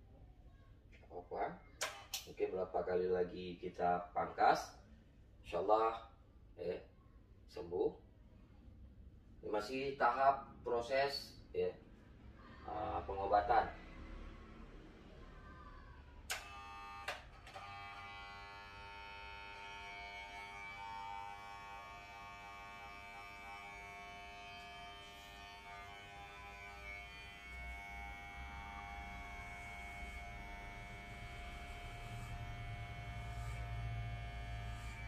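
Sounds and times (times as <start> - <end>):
electric hair clipper buzzing: 16.3 - 35.0.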